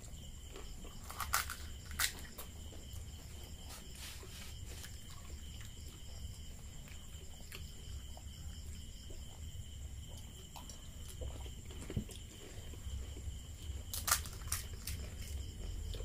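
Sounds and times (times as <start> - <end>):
high-pitched insect trill: 0.0 - 16.0
crisp shells cracking by hand: 1.0 - 2.4, 13.9 - 15.4.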